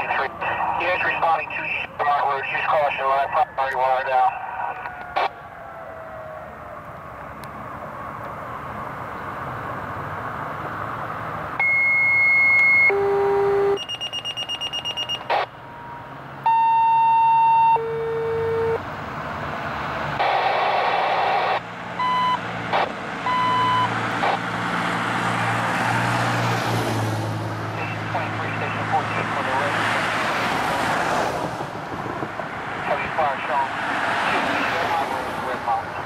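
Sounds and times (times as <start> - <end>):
radio alert tones: 0.0 - 5.4, 11.6 - 15.9, 16.5 - 18.8, 20.2 - 24.4, 27.8 - 29.7
short beeps: 11.6 - 15.3, 16.5 - 18.8, 22.0 - 22.4, 23.3 - 23.9.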